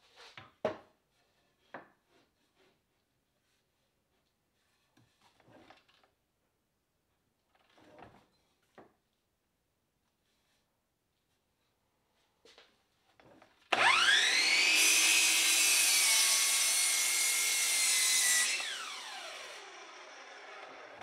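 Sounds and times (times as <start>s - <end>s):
saw blade cutting wood: 13.7s - 21.0s
miter saw motor whine: 13.8s - 21.0s.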